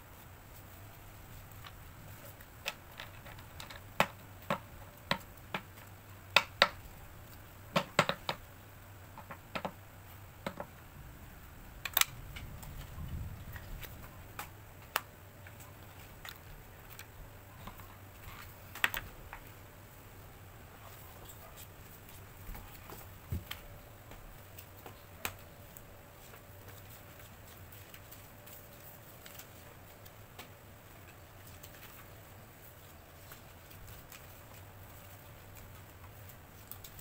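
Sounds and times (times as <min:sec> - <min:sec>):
paper sheets tapping and clicking: 0:02.6 - 0:06.8, 0:07.7 - 0:08.5, 0:09.1 - 0:09.8.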